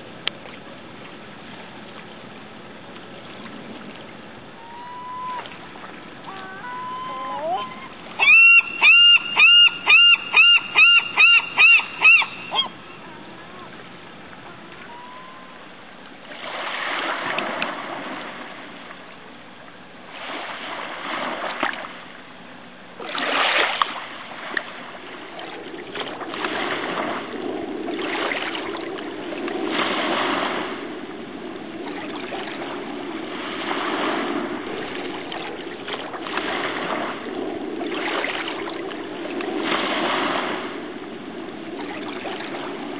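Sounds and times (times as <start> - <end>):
gull calling: 4.6 - 5.6, 6.2 - 13.8, 14.4 - 15.6
waves washing over sand: 16.2 - 19.0, 20.0 - 22.1, 23.0 - 42.9.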